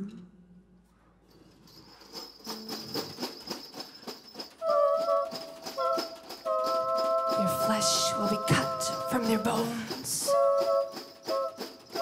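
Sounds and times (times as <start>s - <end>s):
soft ticking percussion: 2.4s - 12.0s
two held harmony notes: 4.6s - 12.0s.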